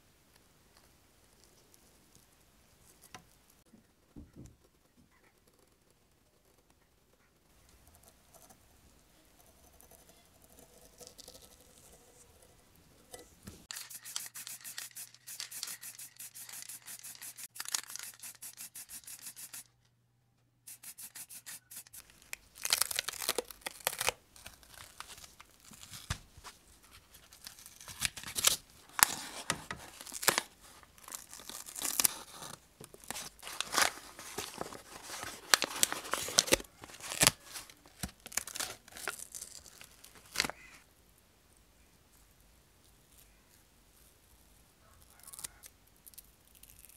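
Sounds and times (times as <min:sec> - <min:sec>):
masking tape peeling: 0:13.6 - 0:19.7, 0:20.7 - 0:26.2, 0:27.3 - 0:40.6
tape crinkling and rubbing: 0:13.6 - 0:19.7, 0:20.7 - 0:40.6.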